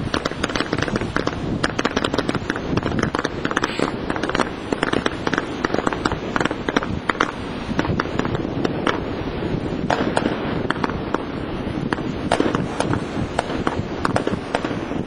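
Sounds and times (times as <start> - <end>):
fireworks crackling: 0.0 - 15.0.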